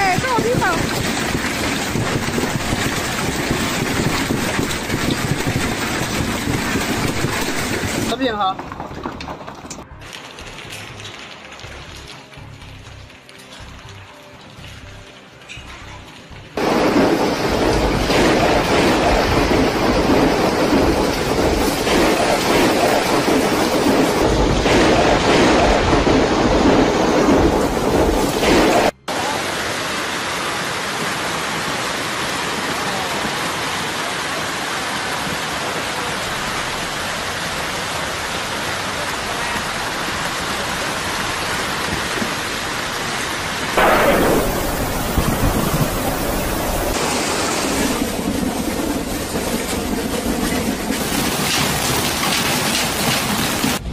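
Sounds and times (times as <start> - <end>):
hailstones pelting down: 0.0 - 29.0, 32.4 - 53.8
rain: 0.0 - 53.9
deep rumble: 16.6 - 29.0, 43.8 - 51.4.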